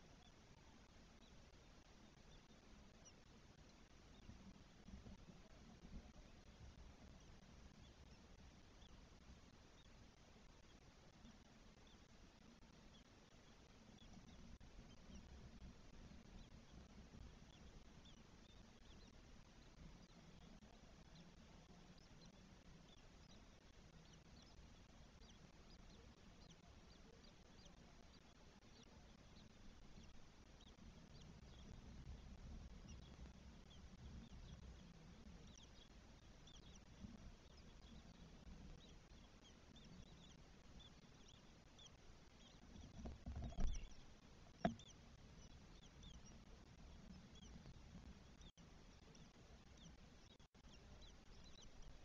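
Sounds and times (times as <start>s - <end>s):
nestlings peeping: 0.0s - 52.0s.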